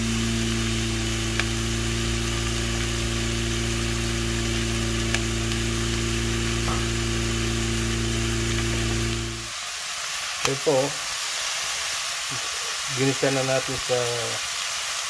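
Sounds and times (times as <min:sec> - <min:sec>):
steady low hum: 0:00.0 - 0:09.5
pork and onions sizzling in pot: 0:00.0 - 0:15.0.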